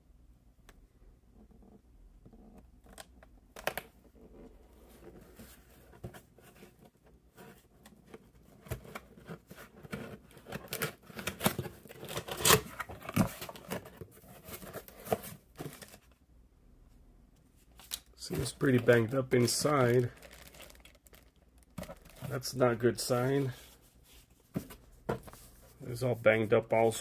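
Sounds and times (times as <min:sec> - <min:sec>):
cardboard box rustling and crinkling: 0:04.8 - 0:16.1, 0:18.3 - 0:23.6.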